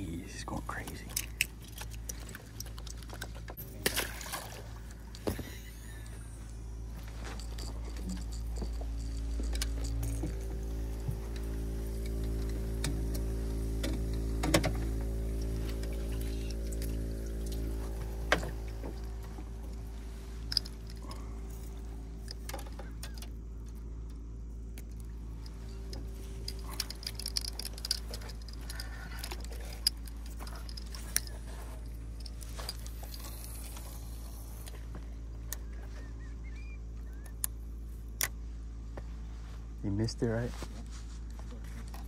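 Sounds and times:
light clicks and rattles: 0:00.0 - 0:03.6, 0:07.0 - 0:35.9
steady low hum: 0:00.0 - 0:42.0.

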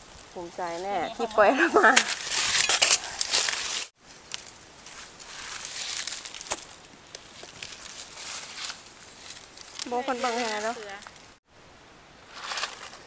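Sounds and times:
dry leaves rustling: 0:00.0 - 0:11.4, 0:12.2 - 0:13.0
twigs snapping: 0:02.0 - 0:11.3.

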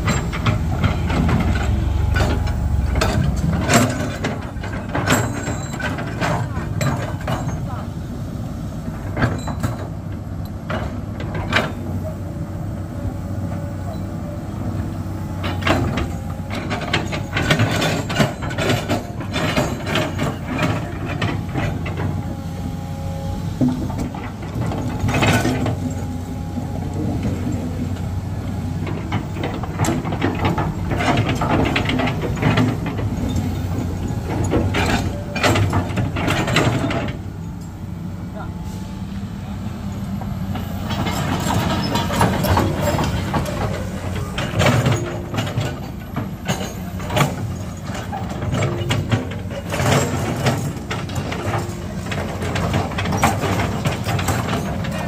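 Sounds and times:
metallic knocks and clatter: 0:00.0 - 0:07.8, 0:15.4 - 0:22.4, 0:23.6 - 0:37.8, 0:40.6 - 0:55.0
heavy engine humming: 0:00.0 - 0:55.0.

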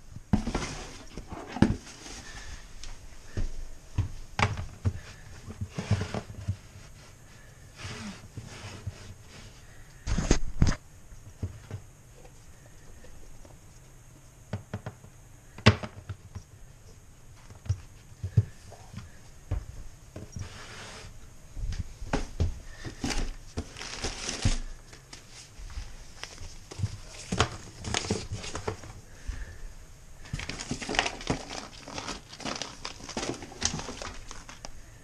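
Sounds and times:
rustling in a cardboard box: 0:21.8 - 0:29.4, 0:30.2 - 0:35.0.

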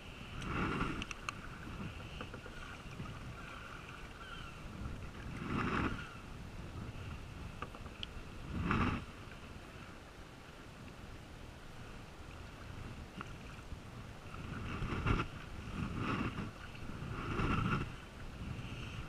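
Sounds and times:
faint water along hull: 0:00.0 - 0:19.0.

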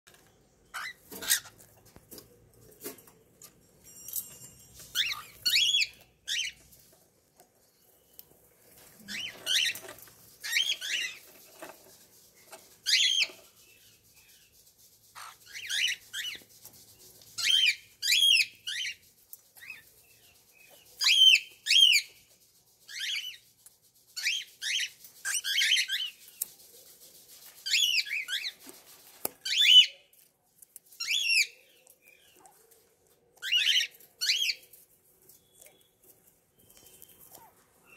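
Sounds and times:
cockatiels chirping: 0:00.7 - 0:01.6, 0:04.9 - 0:06.7, 0:09.0 - 0:11.7, 0:12.8 - 0:14.4, 0:15.1 - 0:16.5, 0:17.4 - 0:22.2, 0:24.2 - 0:26.2, 0:29.4 - 0:29.9, 0:31.0 - 0:32.4, 0:33.4 - 0:35.9.

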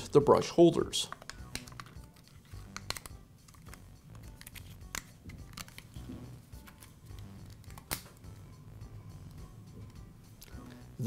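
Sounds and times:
plastic parts clicking: 0:01.1 - 0:06.0.

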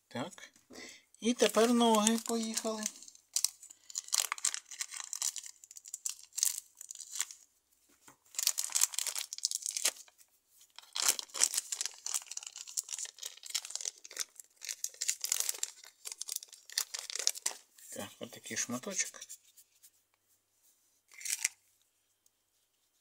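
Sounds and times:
plastic bag crinkling: 0:01.2 - 0:07.4, 0:08.3 - 0:10.1, 0:10.7 - 0:17.7, 0:21.1 - 0:21.6.

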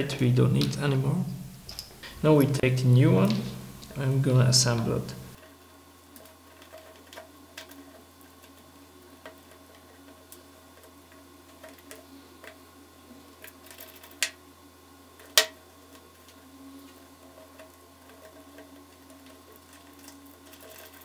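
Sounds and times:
acrylic parts clicking and tapping: 0:01.6 - 0:02.2.

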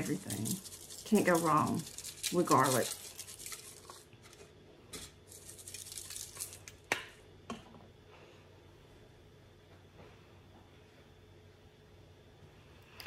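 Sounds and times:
herb rub ticking on foil: 0:00.0 - 0:04.1, 0:05.3 - 0:06.8.

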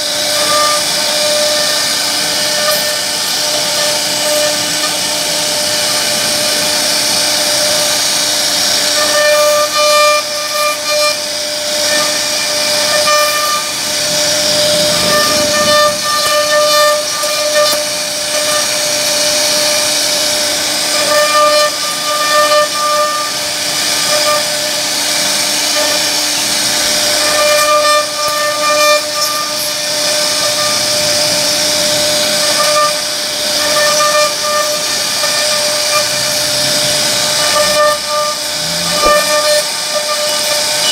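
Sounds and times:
router spindle hissing: 0:00.0 - 0:40.9
ringing whistle-like tone: 0:37.4 - 0:40.9.

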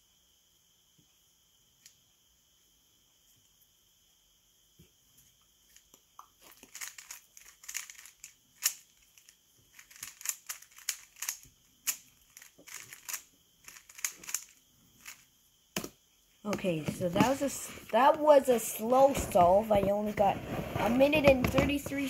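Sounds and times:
plastic puzzle cube clicking: 0:06.5 - 0:15.2.

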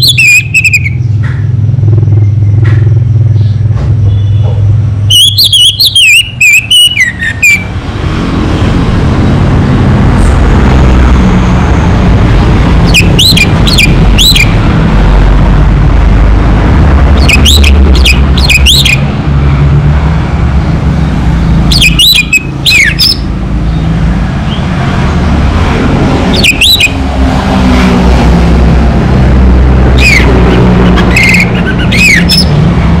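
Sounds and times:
thrush calling: 0:00.0 - 0:01.1, 0:05.1 - 0:07.8, 0:12.8 - 0:14.6, 0:17.2 - 0:19.1, 0:21.6 - 0:23.3, 0:26.2 - 0:27.1, 0:29.9 - 0:32.6
low steady rumble: 0:00.4 - 0:05.1.

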